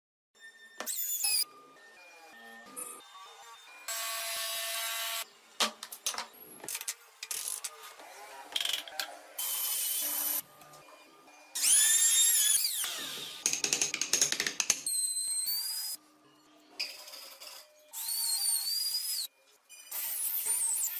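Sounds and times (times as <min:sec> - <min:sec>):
power tools cutting wood: 0:03.9 - 0:05.2.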